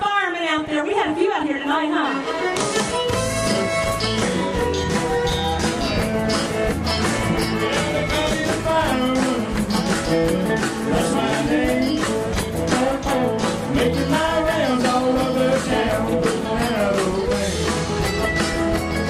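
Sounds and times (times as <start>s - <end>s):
rock band playing: 1.4s - 19.0s
drum beat: 2.6s - 19.0s
man singing into microphone: 7.6s - 17.8s.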